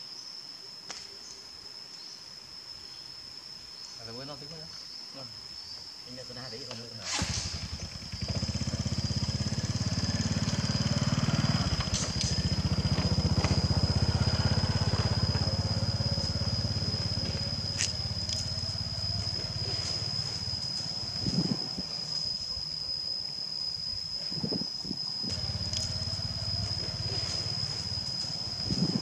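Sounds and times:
high-pitched whine: 6.2s - 29.0s
small engine puttering: 7.0s - 21.8s, 25.2s - 29.0s.

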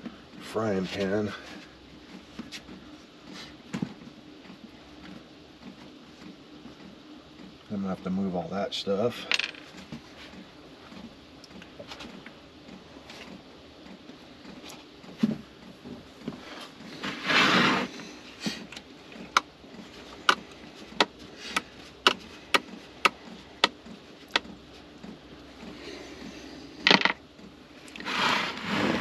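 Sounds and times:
plastic drawer scraping on wood: 16.5s - 18.0s, 28.0s - 29.0s.

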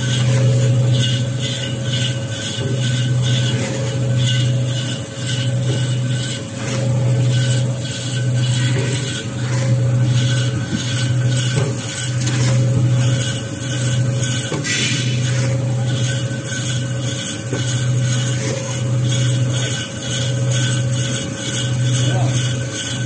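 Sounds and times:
band saw cutting paper rolls: 0.0s - 23.0s.

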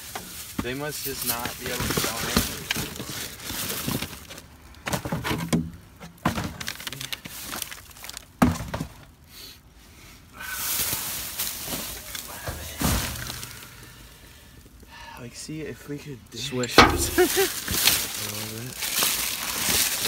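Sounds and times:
plastic bags crinkling: 0.0s - 4.7s, 6.3s - 8.4s, 10.7s - 14.0s, 16.6s - 20.0s
objects thunking and knocking: 4.8s - 6.9s, 16.6s - 18.0s.

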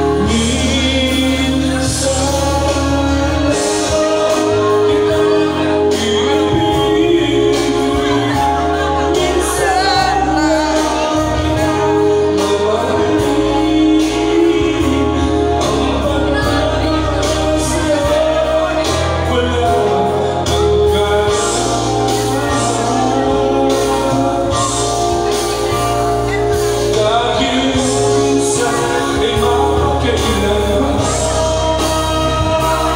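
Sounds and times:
backing track with bass line: 0.0s - 32.9s
person singing into microphone: 0.0s - 32.9s.

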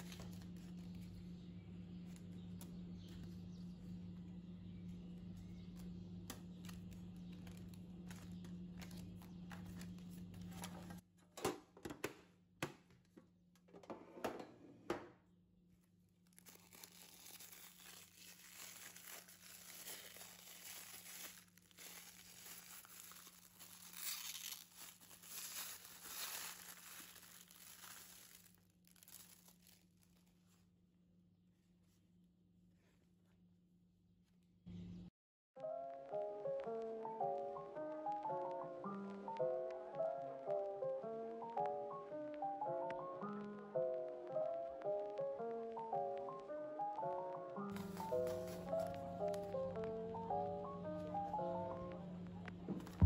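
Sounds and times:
packaging tearing and rustling: 0.0s - 1.1s, 16.2s - 30.5s, 47.7s - 49.0s
packaging crinkling and clicking: 16.2s - 30.3s.

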